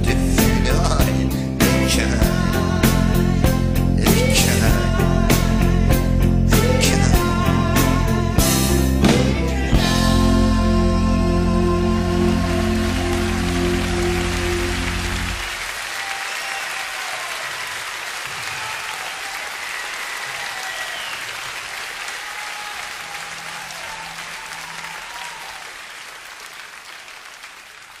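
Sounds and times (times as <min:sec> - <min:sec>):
audience applauding: 0:11.6 - 0:28.0.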